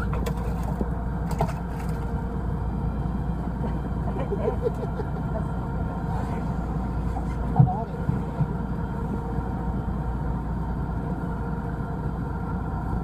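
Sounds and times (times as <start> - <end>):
boat engine droning: 0.0 - 13.0.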